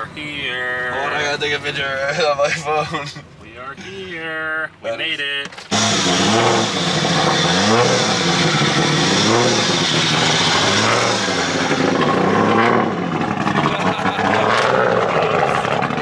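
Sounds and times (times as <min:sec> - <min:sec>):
car engine revving: 0:05.6 - 0:16.0.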